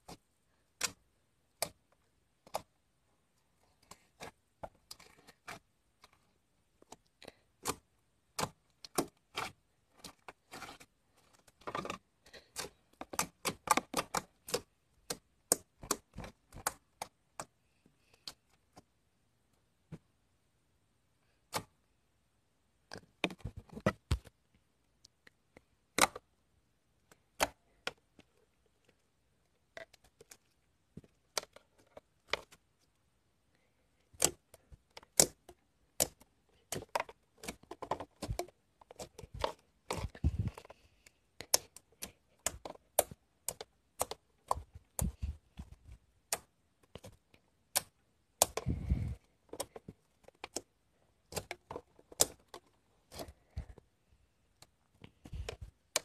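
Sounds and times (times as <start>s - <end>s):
slime squelching: 3.6s - 18.4s.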